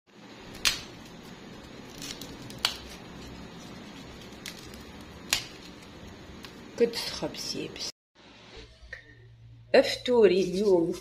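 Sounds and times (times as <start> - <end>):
bread crust tearing and crackling: 0.3 - 6.7.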